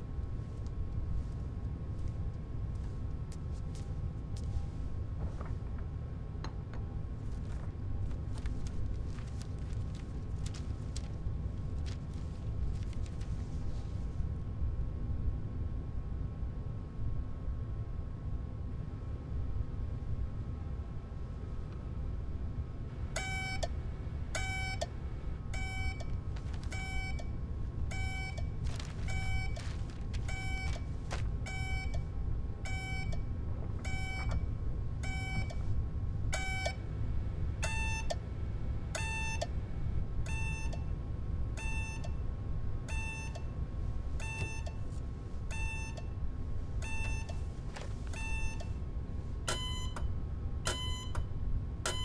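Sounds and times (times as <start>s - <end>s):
steady low hum: 0.0s - 52.0s
short electronic beeps: 23.2s - 23.7s, 41.6s - 42.2s, 44.2s - 44.8s, 45.5s - 46.2s, 46.8s - 47.4s, 49.5s - 50.0s.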